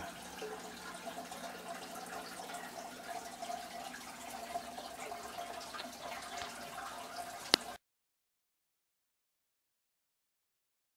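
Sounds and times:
faint steady hum: 0.0 - 7.8
water trickling and dripping: 0.0 - 7.8.

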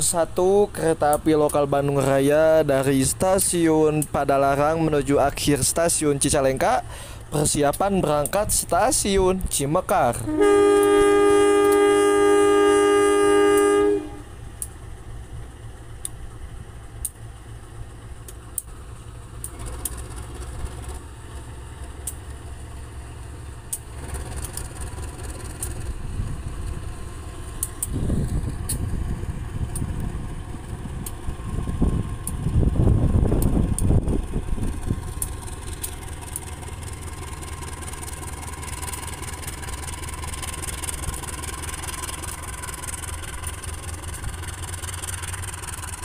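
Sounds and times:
diesel engine rumbling: 0.0 - 46.0
diesel locomotive horn: 10.1 - 14.7.

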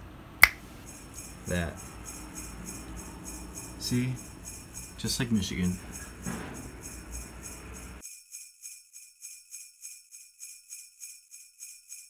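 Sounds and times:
outdoor background noise: 0.0 - 8.0
jingle bells shaken: 0.9 - 12.0.

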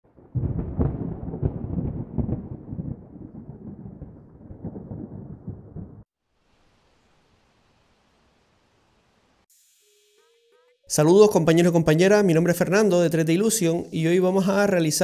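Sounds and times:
thunder rumbling: 0.1 - 6.1.

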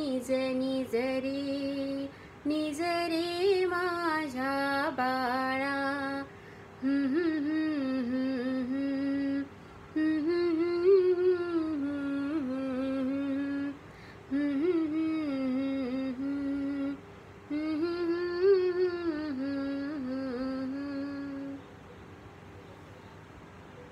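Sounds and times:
woman humming a lullaby: 4.8 - 21.7.

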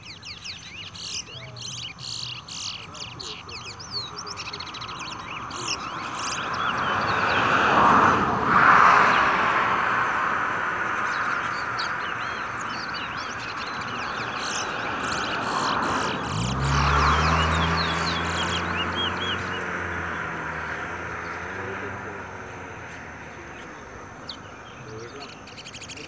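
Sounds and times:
finches chirping and whistling: 0.0 - 7.6, 10.8 - 20.4, 22.9 - 26.0.

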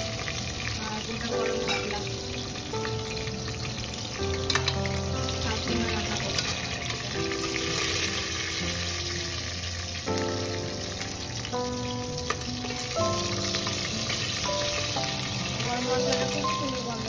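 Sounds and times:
background music: 0.0 - 17.0
spices sizzling in hot oil: 0.0 - 17.0.

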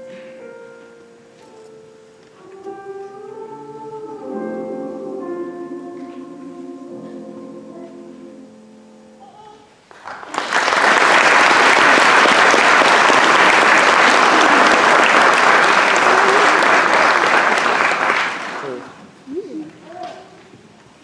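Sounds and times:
choir with piano chord: 1.6 - 9.2
audience applause: 9.9 - 19.0.

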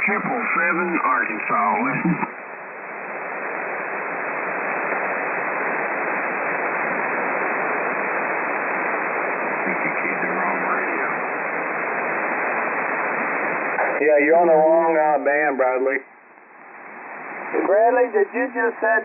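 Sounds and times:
faint voice on radio: 0.0 - 2.4, 9.6 - 11.3
shortwave radio hiss: 0.0 - 19.0.

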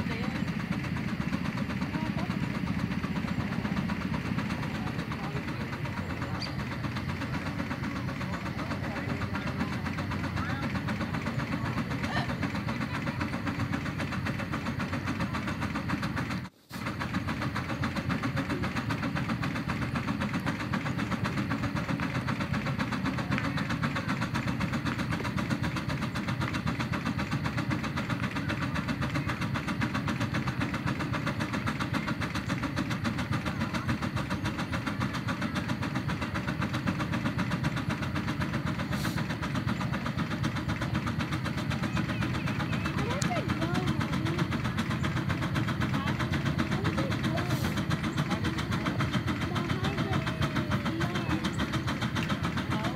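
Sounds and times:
steam engine exhaust chuffing: 0.0 - 52.9.

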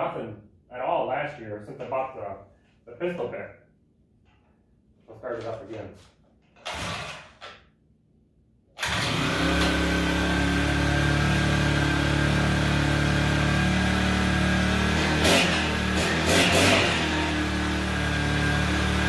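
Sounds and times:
ice auger engine running: 8.8 - 19.0.

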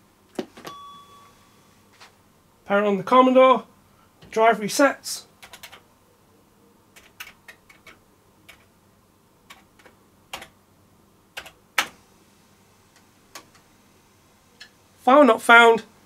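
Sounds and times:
keyboard keystrokes: 7.0 - 8.7.

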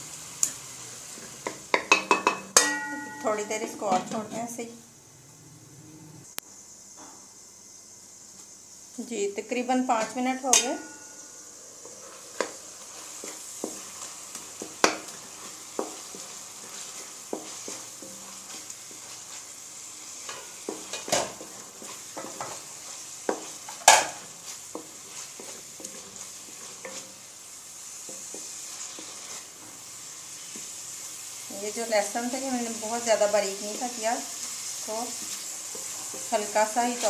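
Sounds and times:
meat sizzling in a pan: 0.0 - 4.7, 6.6 - 37.0
spoon knocking and scraping pan: 1.2 - 4.6, 10.0 - 27.3, 27.9 - 29.8, 34.4 - 37.0.

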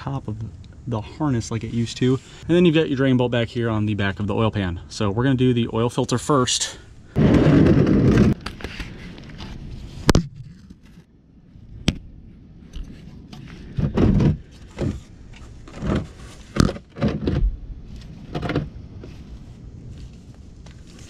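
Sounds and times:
handling bumps and rustles: 12.7 - 21.0.

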